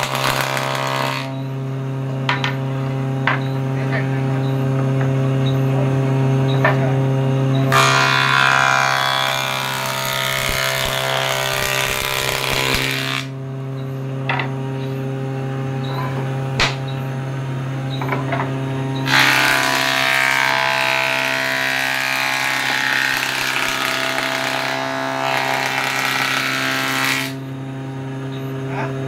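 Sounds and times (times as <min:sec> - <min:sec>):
board planing on cutterhead: 0:00.0 - 0:01.5, 0:07.7 - 0:13.4, 0:17.9 - 0:27.4
jointer-planer motor humming: 0:07.7 - 0:13.3, 0:19.0 - 0:27.4
sharp knocks: 0:16.6 - 0:16.9.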